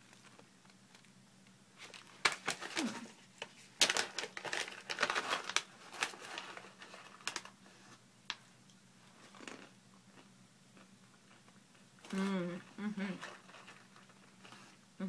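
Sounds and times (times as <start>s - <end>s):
snack pouch crinkling: 1.8s - 7.6s.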